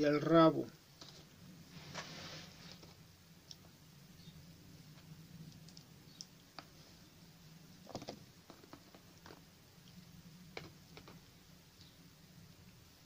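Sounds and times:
low steady hum: 0.0 - 13.0
crinkles: 7.8 - 11.9
hands rustling and clicking filler: 7.8 - 11.9.

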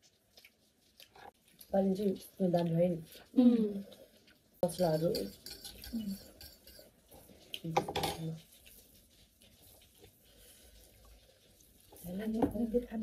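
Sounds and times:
cutlery clinking on plates: 4.7 - 6.9, 7.8 - 8.3.

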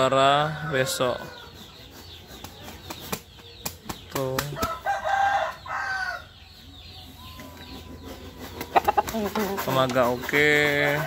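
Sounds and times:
rooster crowing: 4.7 - 6.3.

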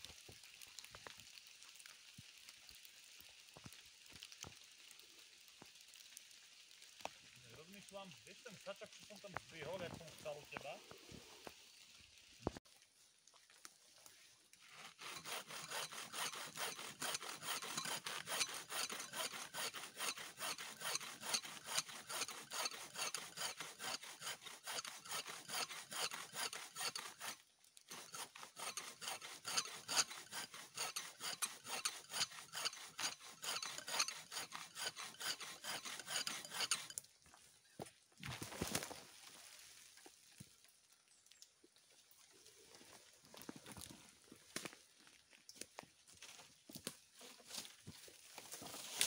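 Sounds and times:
hand saw cutting tree trunk: 14.6 - 37.0, 48.4 - 49.0.

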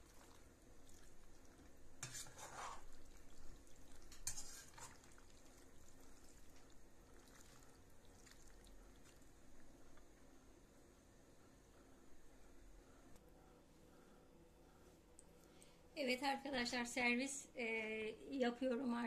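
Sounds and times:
metal spoon stirring pasta in pan: 0.0 - 9.2
faint scrapes: 2.0 - 3.1, 4.1 - 5.1.

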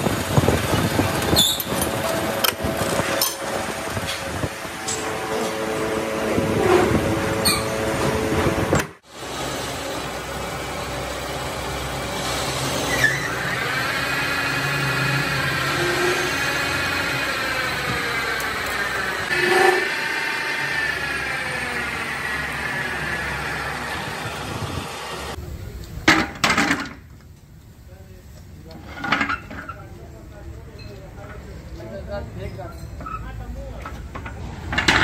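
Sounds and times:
workshop machinery humming and whining: 0.0 - 25.8.

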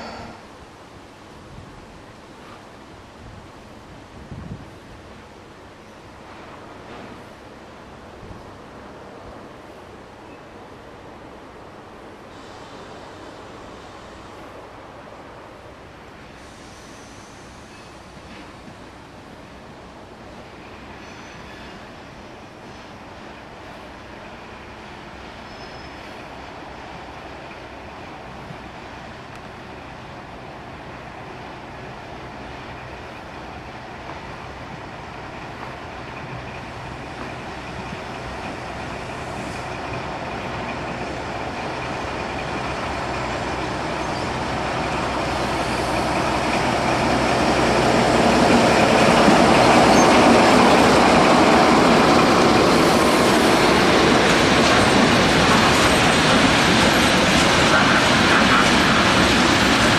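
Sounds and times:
diesel locomotive approaching: 0.0 - 59.9.

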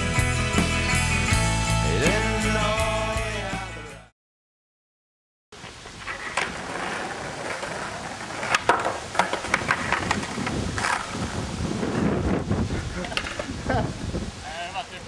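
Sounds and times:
skateboard tail clacks and landings: 5.6 - 13.6
skateboard rolling on asphalt: 5.6 - 14.4.

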